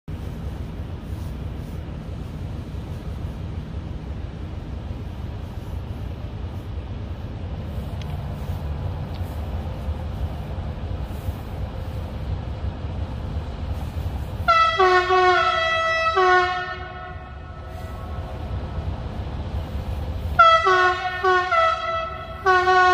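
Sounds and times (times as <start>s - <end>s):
low rumble: 0.1s - 22.9s
locomotive horn blasts: 14.4s - 18.6s, 20.3s - 22.9s.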